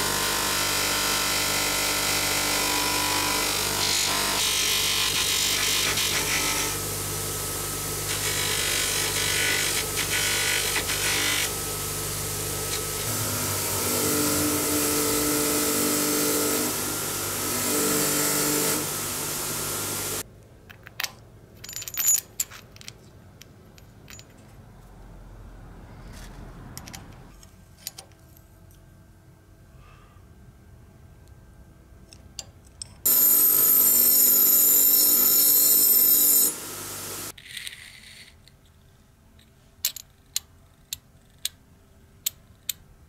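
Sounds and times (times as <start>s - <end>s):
polishing machine humming: 11.0s - 20.2s, 33.1s - 37.3s
metal parts clinking: 20.7s - 24.6s.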